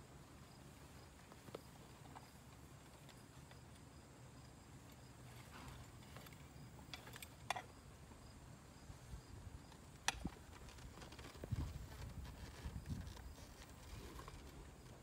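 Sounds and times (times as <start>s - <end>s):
saddle clinks and rustles: 0.6s - 3.9s, 4.8s - 7.7s, 9.6s - 15.0s.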